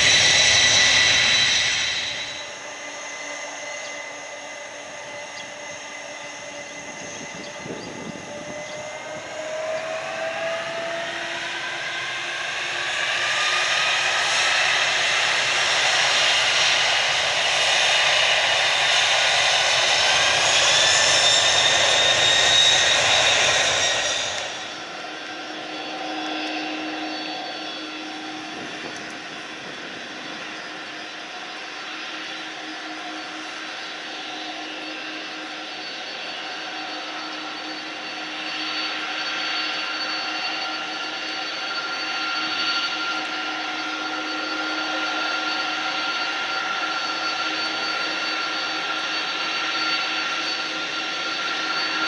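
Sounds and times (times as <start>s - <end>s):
jet engine hum: 0.0s - 52.0s
jet engines spooling up: 0.0s - 52.0s.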